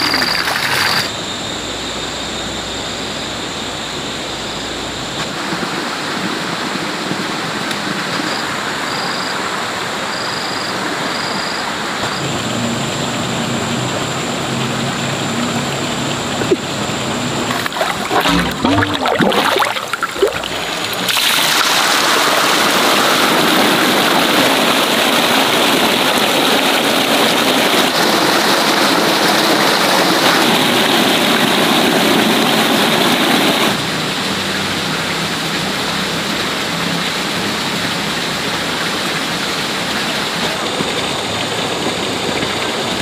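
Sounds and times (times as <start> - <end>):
water rushing through drain pipe: 0.0 - 1.2, 10.1 - 43.0
water splashing: 0.0 - 1.2, 12.1 - 43.0.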